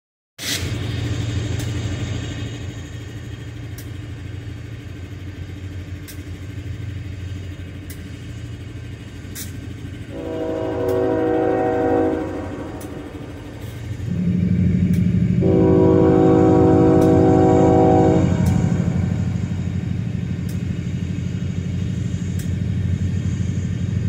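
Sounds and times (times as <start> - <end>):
diesel locomotive engine humming: 0.4 - 24.0
locomotive horn chord: 10.0 - 14.6, 15.4 - 20.1.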